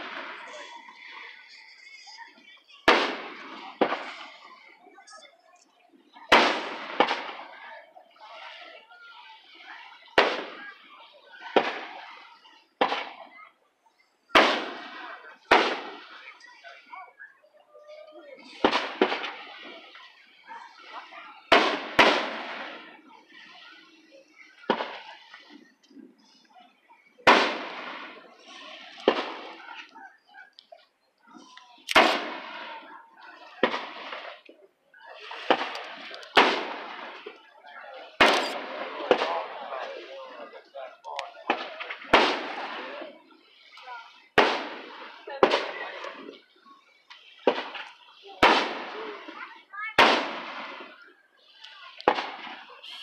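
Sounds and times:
firework shells booming: 2.9 - 4.5, 6.3 - 7.6, 14.3 - 16.4, 18.4 - 20.0, 21.4 - 23.2, 27.2 - 29.6, 31.9 - 33.0, 35.3 - 37.5, 41.5 - 42.9, 52.0 - 52.7
firework shells bursting: 38.2 - 39.3.

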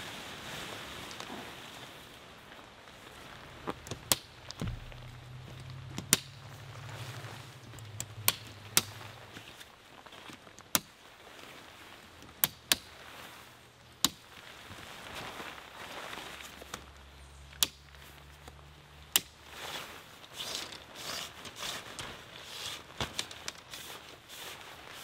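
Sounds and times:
light rain hiss: 0.0 - 25.0
low hum: 3.4 - 9.4
plastic clips clicking: 7.7 - 9.1.

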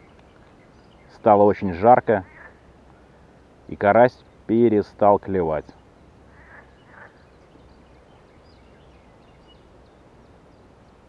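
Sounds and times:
faint distant birdsong: 0.0 - 11.0.

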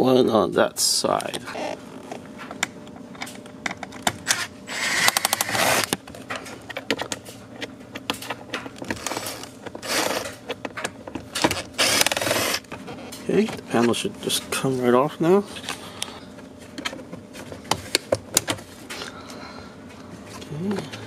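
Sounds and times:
impact driver running: 8.9 - 10.3, 11.4 - 12.7.

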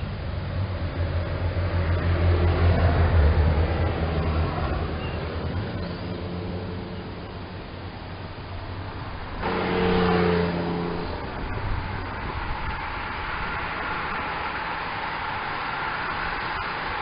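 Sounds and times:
bicycle tyres hissing on road: 0.0 - 17.0
car and motorbike passing: 0.0 - 17.0.

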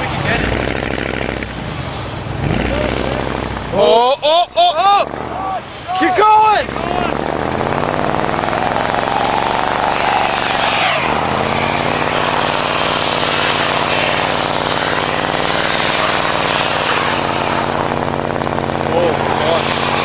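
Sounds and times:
truck engine revving high: 0.0 - 20.0
wheels spinning: 4.6 - 20.0.

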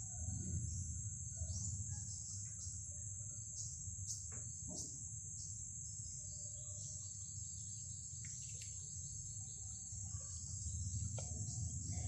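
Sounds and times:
insects trilling: 0.0 - 12.0
faint ticks: 11.1 - 11.4.

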